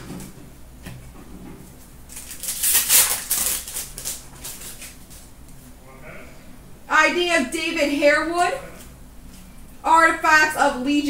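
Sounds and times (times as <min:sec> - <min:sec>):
trading cards rustling and clicking: 0:02.1 - 0:05.3.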